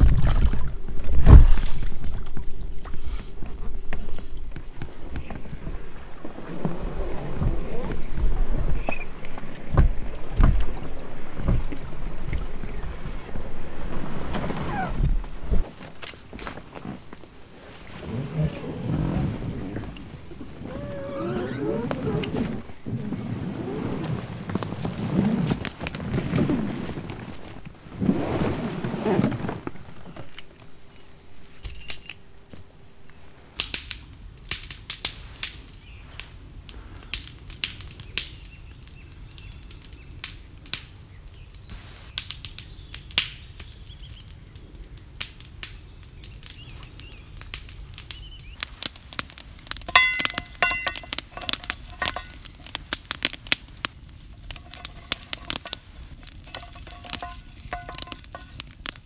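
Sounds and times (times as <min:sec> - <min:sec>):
campfire crackling and popping: 0:00.0 - 0:28.3, 0:33.5 - 0:59.0.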